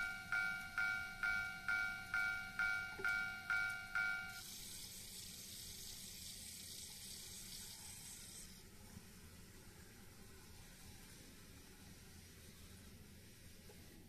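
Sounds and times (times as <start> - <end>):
level crossing bell clanging: 0.0 - 4.4.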